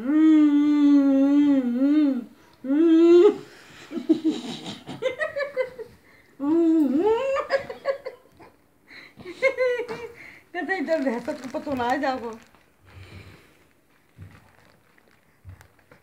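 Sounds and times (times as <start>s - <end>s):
laughter: 3.9s - 6.0s, 7.2s - 8.3s.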